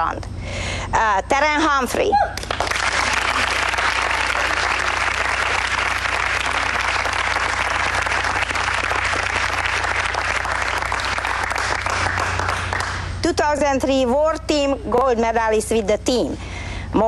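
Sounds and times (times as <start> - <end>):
people applauding: 2.4 - 13.2.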